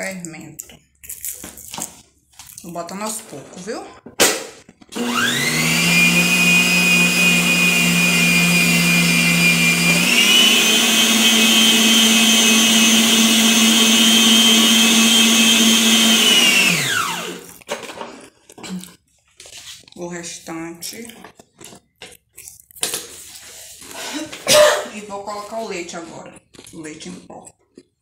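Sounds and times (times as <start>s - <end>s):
stand mixer motor whining: 4.9s - 17.6s.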